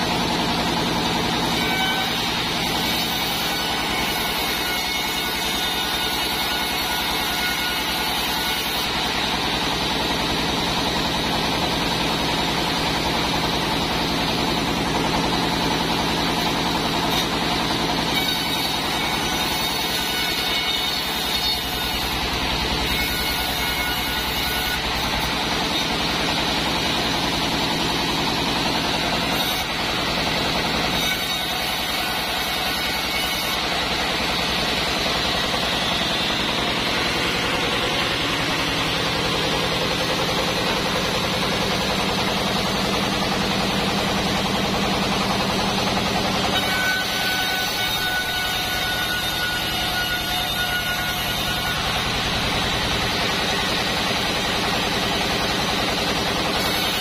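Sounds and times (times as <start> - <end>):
band saw droning: 0.0 - 57.0.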